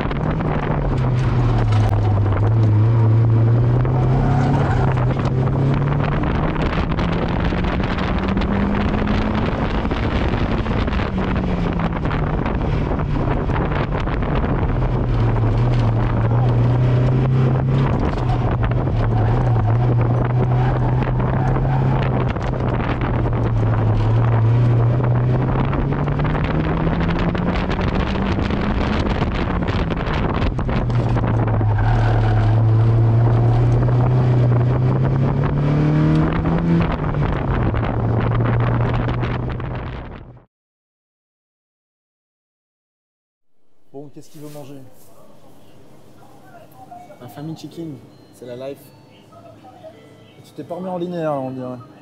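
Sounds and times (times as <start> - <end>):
car engine revving under load: 0.0 - 40.4
wind noise: 0.0 - 40.5.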